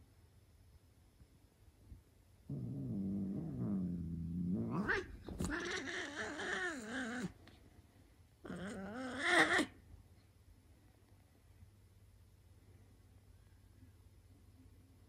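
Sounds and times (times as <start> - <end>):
cat growling: 2.5 - 7.4, 8.4 - 9.8
cat yowling: 4.7 - 7.3, 8.5 - 9.8.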